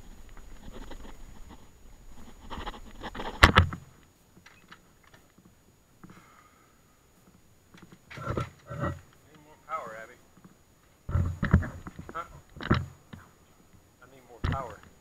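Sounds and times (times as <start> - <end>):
rustling: 0.0 - 15.0.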